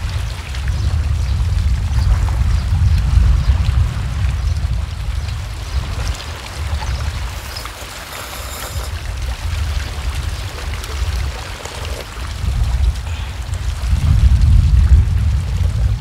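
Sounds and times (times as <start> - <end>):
wind rumbling on microphone: 0.0 - 16.0
small waves against rocks: 4.1 - 16.0
noodle slurp: 6.9 - 12.5.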